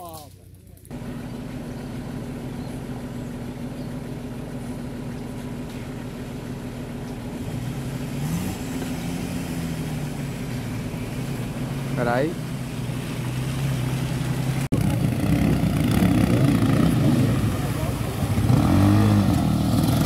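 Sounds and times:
engines humming at low revs: 0.0s - 20.0s
engine revving: 7.3s - 20.0s.

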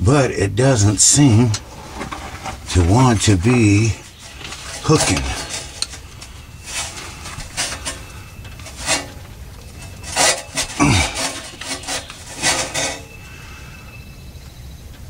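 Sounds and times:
metal pry tool scraping: 1.9s - 13.3s.

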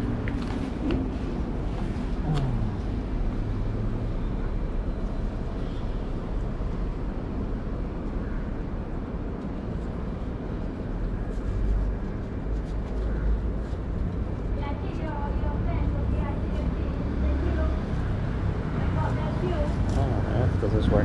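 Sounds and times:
street traffic rumble: 0.0s - 21.0s
vehicle passing: 15.6s - 21.0s.

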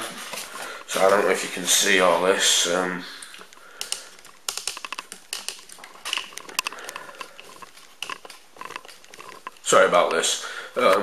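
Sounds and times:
handling clicks and taps: 3.2s - 10.3s.

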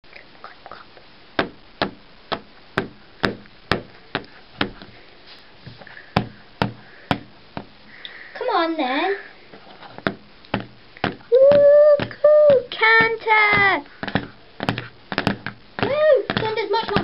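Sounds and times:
toy hooves knocking on hard surface: 5.8s - 7.8s, 10.0s - 17.0s.

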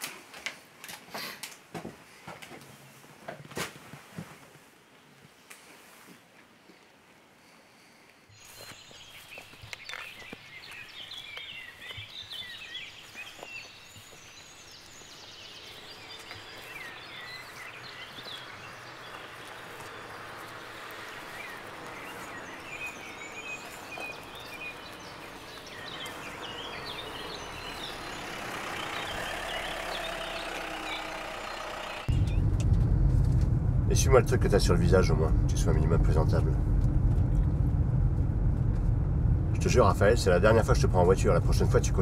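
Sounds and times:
birds chirping: 8.3s - 32.6s, 33.9s - 36.7s, 39.5s - 42.0s
car engine hum: 14.6s - 42.0s
background haze: 15.0s - 42.0s.

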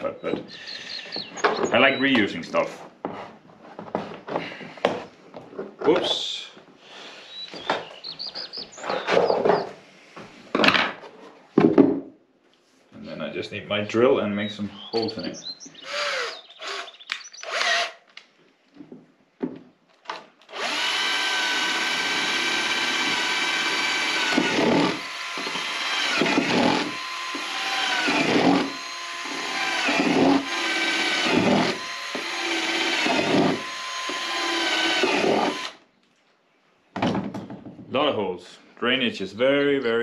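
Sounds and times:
electric drill whining: 15.8s - 18.0s, 20.4s - 35.8s.

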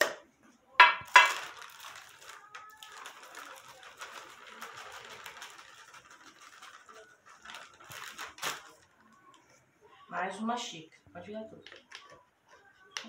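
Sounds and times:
plastic flour bag crinkling: 0.8s - 9.4s.

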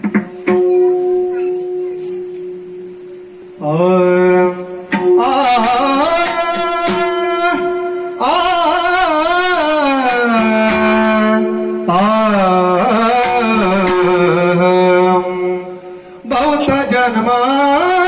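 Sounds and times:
steady drone note: 2.4s - 16.4s
man singing: 3.6s - 18.0s.

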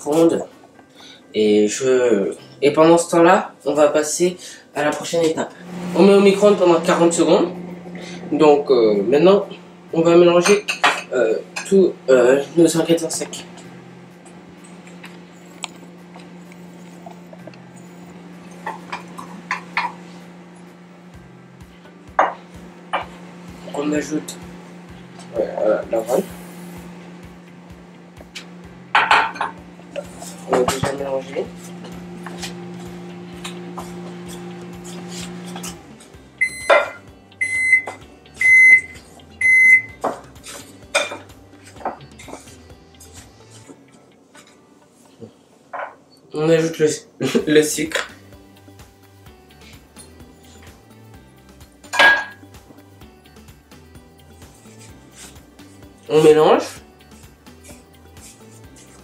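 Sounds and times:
steady low hum: 3.6s - 59.0s
wooden spoon scraping in bowl: 31.4s - 35.8s, 54.4s - 55.9s, 57.2s - 59.0s
microwave short high beeps: 36.4s - 40.0s.

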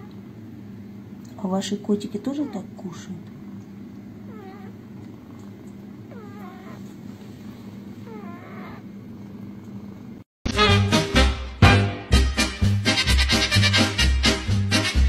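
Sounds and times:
kitten growling while eating: 4.2s - 7.0s
kitten whiny call: 4.3s - 4.8s, 6.1s - 7.0s, 8.0s - 8.9s.

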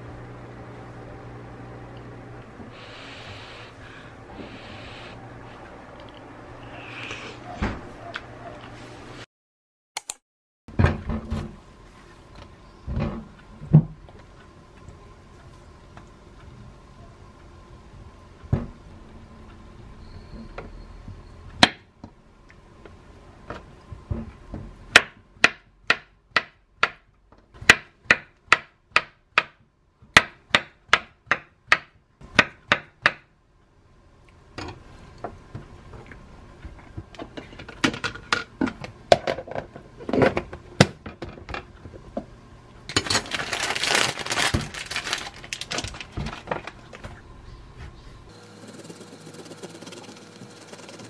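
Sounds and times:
plastic bag crinkling: 43.0s - 47.0s.

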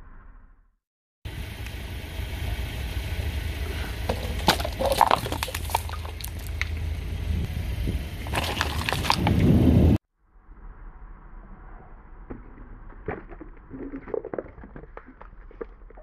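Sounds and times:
car engine running: 1.3s - 10.0s
plastic tubs cracking: 4.1s - 6.8s, 8.3s - 9.4s.

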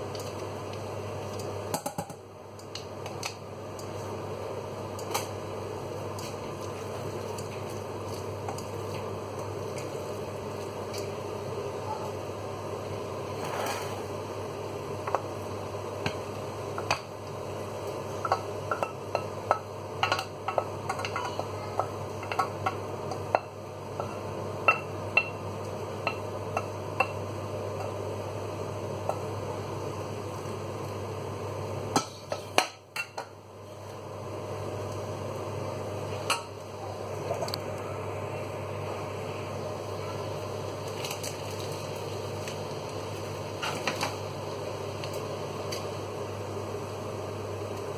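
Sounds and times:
steady low hum: 0.0s - 47.9s
wooden spoon scraping a saucepan: 13.4s - 14.0s.

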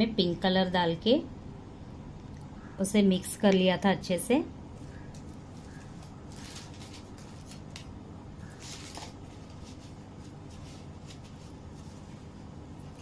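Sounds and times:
steady low hum: 0.0s - 13.0s
faint rustles and scrapes: 4.7s - 7.8s, 8.4s - 13.0s.

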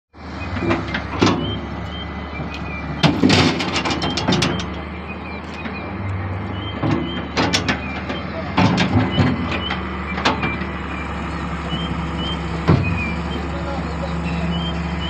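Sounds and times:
heavy diesel machinery running: 0.2s - 15.0s
sharp knocks and clanks: 3.0s - 4.8s, 6.6s - 10.7s.

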